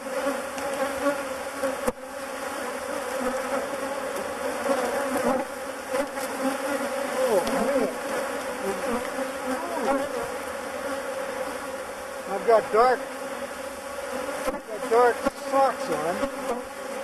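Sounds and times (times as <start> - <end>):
bees zipping past: 0.0 - 17.0
swarm of bees buzzing: 0.0 - 17.0.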